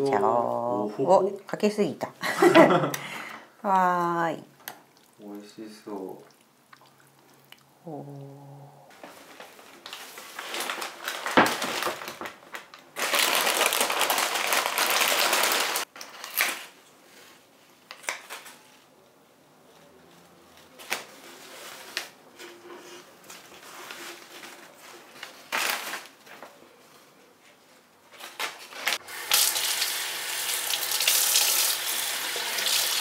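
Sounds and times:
paper rustling: 0:09.0 - 0:18.9, 0:19.7 - 0:27.2.

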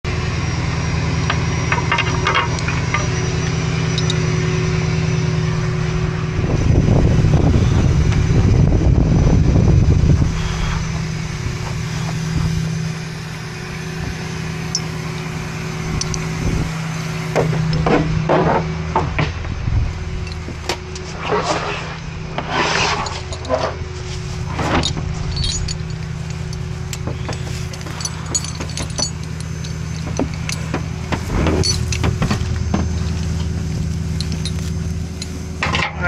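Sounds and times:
tractor engine running: 0:00.0 - 0:36.0
light metallic clanks: 0:24.6 - 0:36.0.

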